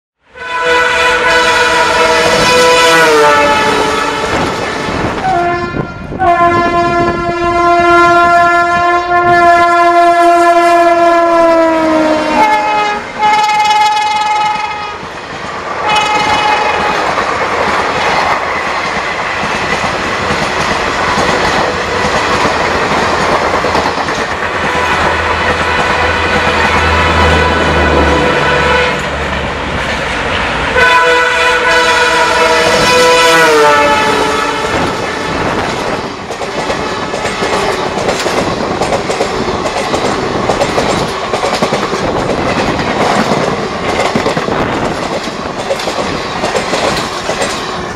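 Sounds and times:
train horns blowing: 0:00.2 - 0:15.1, 0:15.8 - 0:17.2, 0:24.6 - 0:37.7
train rumbling past: 0:00.3 - 0:47.9.

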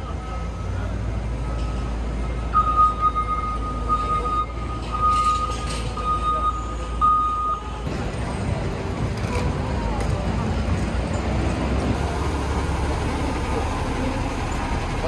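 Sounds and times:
city street traffic rumbling: 0:00.0 - 0:15.0
high electronic beep: 0:02.2 - 0:07.7.

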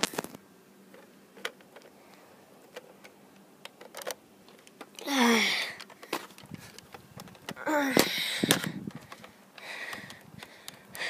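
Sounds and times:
toy blaster clicks and knocks: 0:03.7 - 0:10.2.

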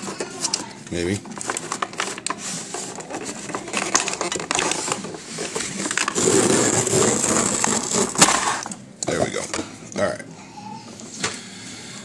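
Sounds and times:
packaging crackling and rustling: 0:01.3 - 0:08.8.

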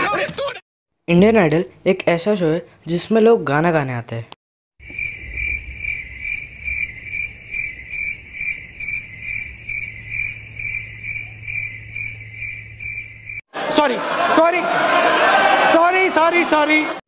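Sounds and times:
high cricket chirps: 0:04.8 - 0:13.4
low hum: 0:04.8 - 0:13.4.

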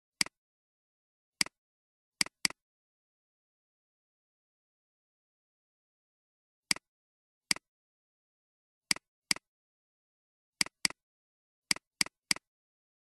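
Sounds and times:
computer mouse clicks: 0:01.4 - 0:01.6, 0:02.2 - 0:02.6, 0:08.9 - 0:09.5, 0:10.6 - 0:11.0, 0:11.7 - 0:12.5.

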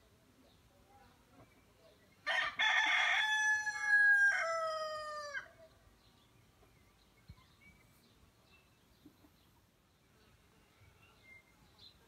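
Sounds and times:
rooster crowing: 0:02.3 - 0:05.6.

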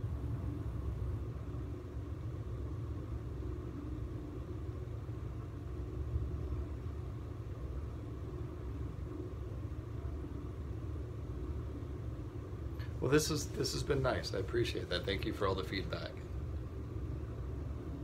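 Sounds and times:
low background rumble: 0:00.0 - 0:18.0.

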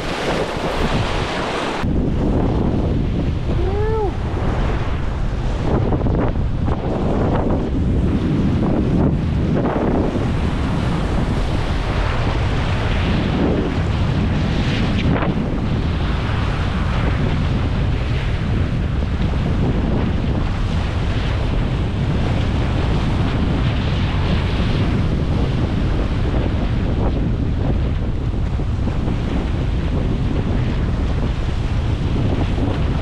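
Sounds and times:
waves breaking over rocks: 0:00.0 - 0:08.1
wind buffeting microphone: 0:00.0 - 0:33.0.

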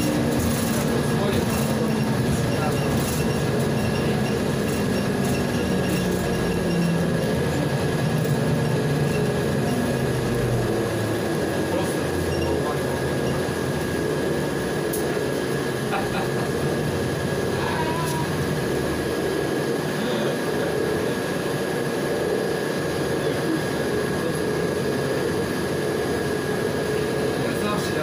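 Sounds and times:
bus engine and road noise: 0:00.0 - 0:28.0.

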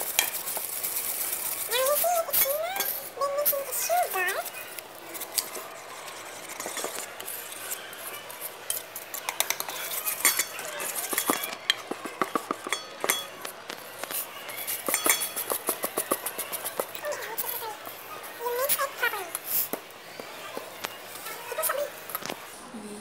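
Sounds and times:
utensil stirring batter in bowl: 0:00.0 - 0:22.5.

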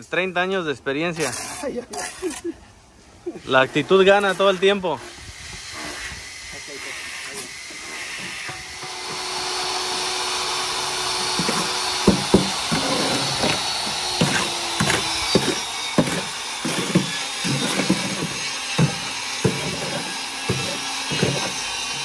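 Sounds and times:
shovel scraping wet mortar: 0:01.1 - 0:02.6, 0:11.2 - 0:22.0
sharp knocks: 0:11.3 - 0:13.6.

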